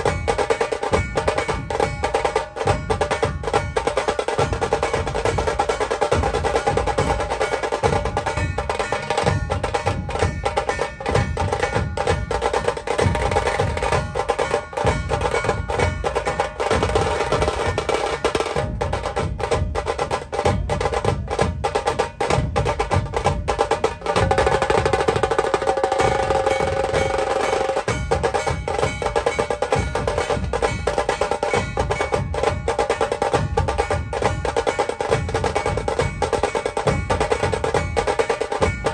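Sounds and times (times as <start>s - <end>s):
fast heavy drumming: 0.0s - 38.9s
festival music melody: 0.0s - 38.9s.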